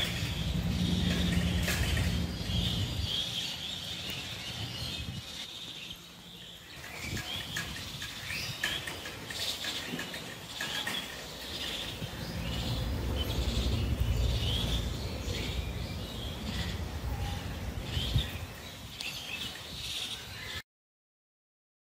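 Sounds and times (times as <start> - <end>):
low rumble: 0.0 - 3.8, 11.9 - 18.6.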